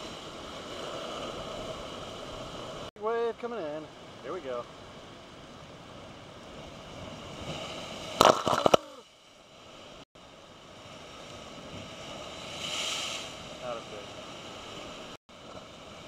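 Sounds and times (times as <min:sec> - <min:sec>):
ocean wave crashing over rocks: 0:10.8 - 0:15.2.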